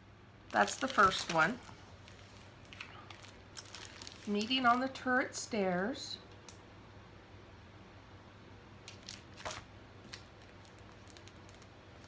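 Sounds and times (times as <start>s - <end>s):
low steady hum: 0.0s - 12.0s
plastic sleeves rustling and clicking: 0.5s - 4.8s, 8.8s - 12.0s.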